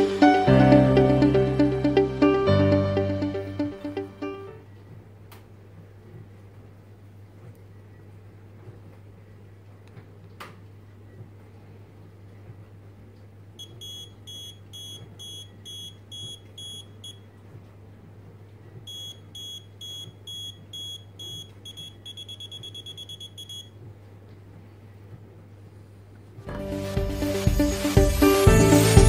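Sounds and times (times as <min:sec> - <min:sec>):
high-pitched tester beeping: 0:13.6 - 0:17.2, 0:18.9 - 0:23.7.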